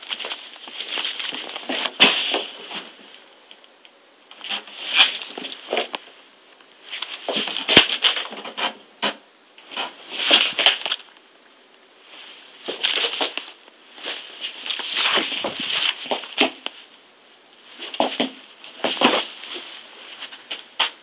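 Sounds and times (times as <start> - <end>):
rustling and crinkling: 0.0 - 6.0, 12.0 - 16.9, 17.6 - 21.0
rabbit hopping and scrabbling: 12.6 - 16.8, 17.7 - 19.8.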